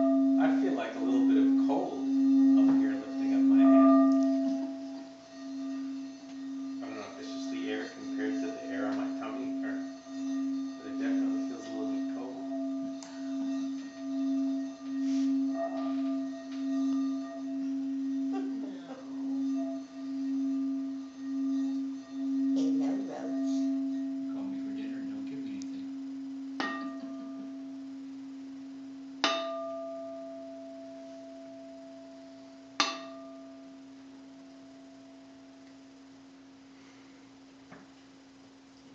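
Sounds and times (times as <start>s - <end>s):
singing bowl struck and ringing: 0.0s - 36.4s
singing bowl humming when rubbed: 0.0s - 38.9s.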